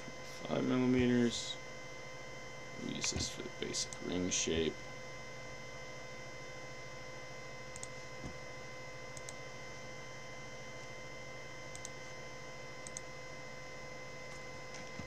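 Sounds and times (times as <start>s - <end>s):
electrical hum: 0.0s - 15.0s
computer mouse clicks: 7.7s - 8.0s, 9.2s - 9.4s, 11.7s - 12.0s, 12.8s - 13.1s.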